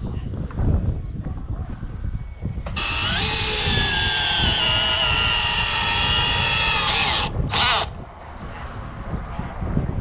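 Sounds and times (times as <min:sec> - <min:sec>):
cordless drill motor whining: 0:02.7 - 0:07.9.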